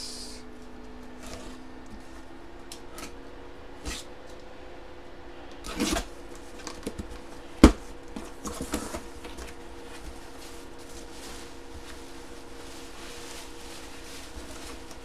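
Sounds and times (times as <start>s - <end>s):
faint steady hum: 0.0s - 15.0s
rustle: 8.7s - 15.0s.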